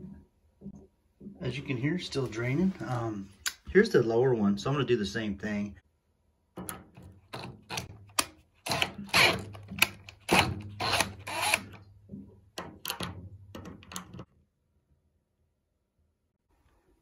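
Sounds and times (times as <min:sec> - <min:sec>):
cordless drill running in spurts: 0:08.7 - 0:09.5, 0:10.2 - 0:11.8.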